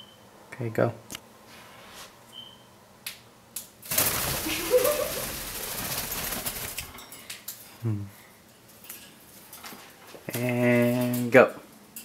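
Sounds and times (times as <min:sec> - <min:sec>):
bird wings flapping: 0:03.8 - 0:07.0.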